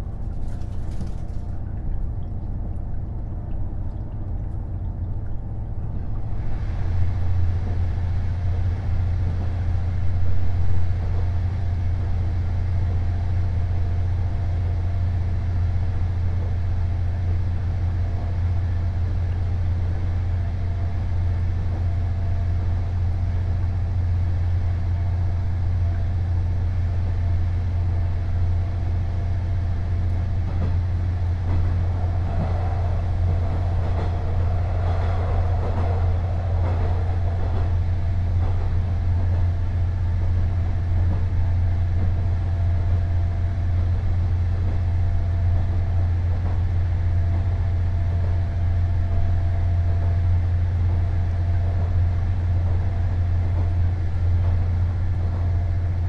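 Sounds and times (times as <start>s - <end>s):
diesel engine humming: 28.6s - 41.7s
rough mid-pitched rumble: 29.5s - 41.8s.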